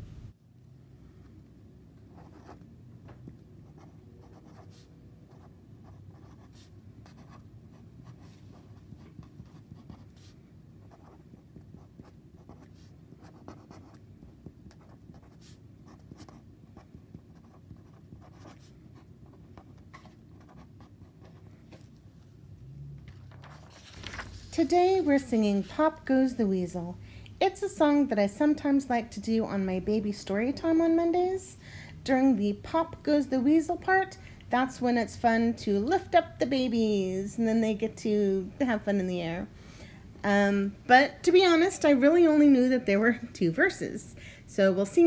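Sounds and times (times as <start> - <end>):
steady low hum: 0.0 - 45.0
pen scratching on paper: 2.1 - 2.6, 3.6 - 21.5.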